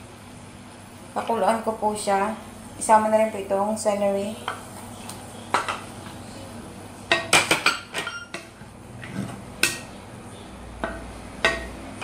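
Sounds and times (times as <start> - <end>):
spatula knocking metal wok: 10.8 - 11.8.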